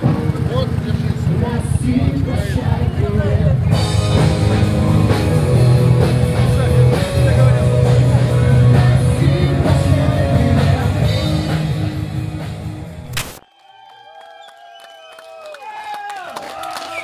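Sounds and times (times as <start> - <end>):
rock music with singing: 0.0 - 13.1.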